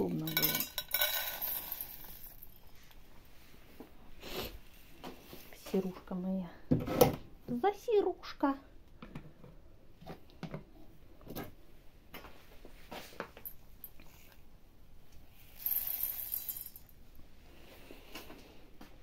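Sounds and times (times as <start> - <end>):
grain pouring into steel bowl: 0.3 - 2.6, 15.4 - 17.0.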